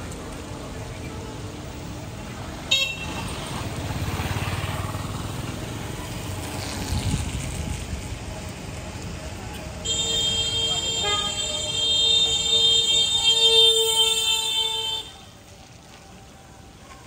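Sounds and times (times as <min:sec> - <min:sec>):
passing vehicle rumble: 0:00.0 - 0:09.8
vehicle horn toot: 0:02.7 - 0:03.2, 0:09.8 - 0:15.3.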